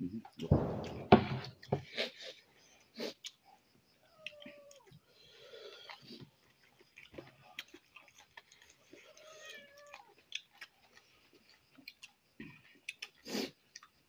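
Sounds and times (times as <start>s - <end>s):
chewing: 4.2s - 14.0s.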